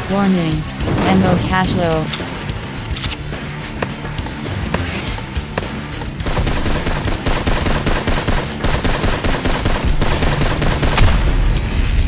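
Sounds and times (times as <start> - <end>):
automatic gunfire: 6.2 - 11.2.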